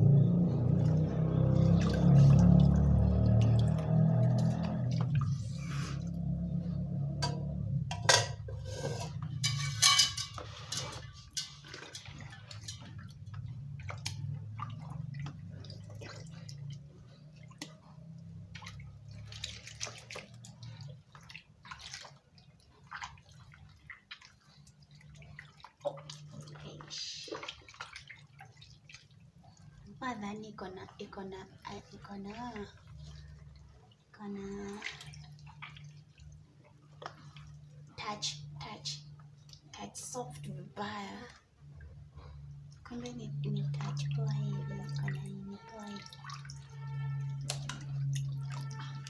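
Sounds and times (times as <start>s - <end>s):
hands splashing in basin water: 0.0s - 6.6s, 8.7s - 29.6s, 42.7s - 49.0s.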